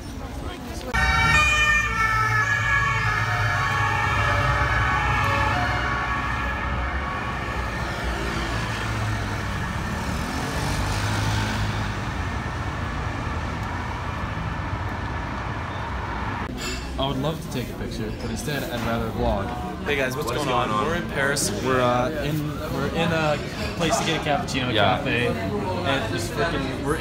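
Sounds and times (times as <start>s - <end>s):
street traffic rumble: 0.0s - 27.0s
police motorcycle siren: 1.0s - 14.7s.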